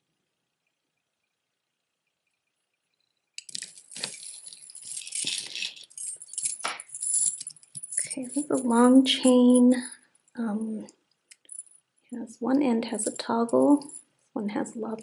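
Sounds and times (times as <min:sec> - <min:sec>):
metal chain jangling: 0:03.4 - 0:10.0, 0:11.3 - 0:11.8, 0:13.1 - 0:14.0.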